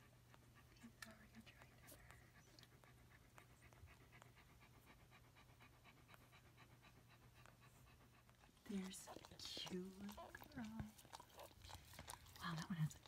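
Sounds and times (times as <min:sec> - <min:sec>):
dog panting: 0:00.0 - 0:13.0
low steady hum: 0:00.0 - 0:13.0.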